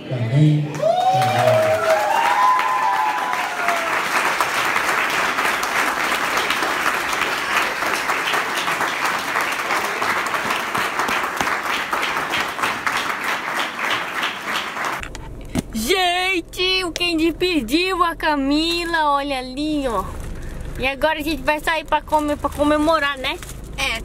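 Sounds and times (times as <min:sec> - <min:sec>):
audience applauding: 0:00.7 - 0:15.0.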